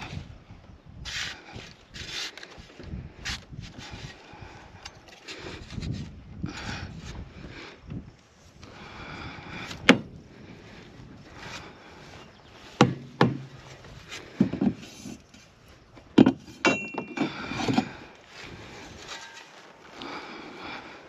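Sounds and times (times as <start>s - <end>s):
tools knocking and clunking: 12.8s - 15.2s, 16.0s - 18.0s
metallic clink: 16.6s - 17.3s.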